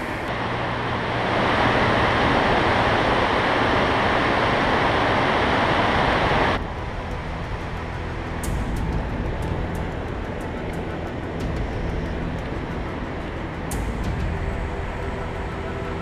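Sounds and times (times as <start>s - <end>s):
tidal water rushing: 0.0s - 16.0s.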